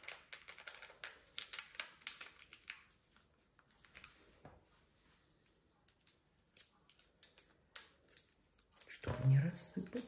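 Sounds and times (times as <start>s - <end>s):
packet crinkling and clicking: 0.0s - 4.2s, 5.9s - 9.1s.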